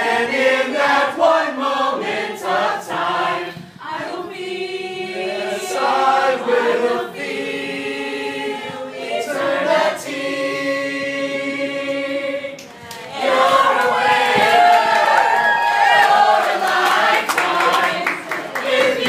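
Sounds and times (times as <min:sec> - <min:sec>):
choir singing a cappella: 0:00.0 - 0:19.0
excited voices: 0:13.0 - 0:18.0.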